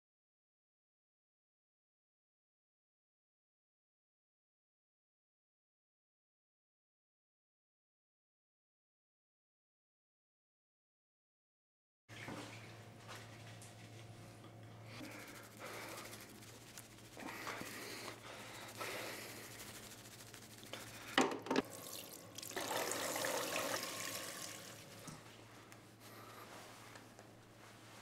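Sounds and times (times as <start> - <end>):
low steady hum: 12.1 - 28.0
tap water running into washbasin: 20.6 - 25.2.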